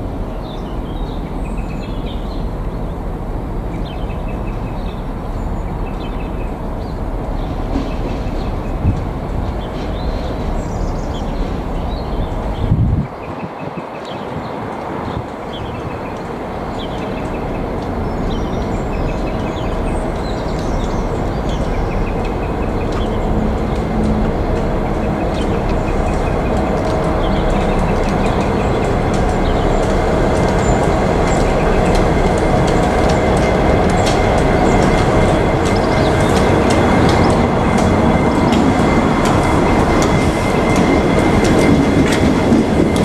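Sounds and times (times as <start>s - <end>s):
diesel locomotives rumbling: 0.0s - 43.0s
small birds chirping: 3.8s - 23.9s.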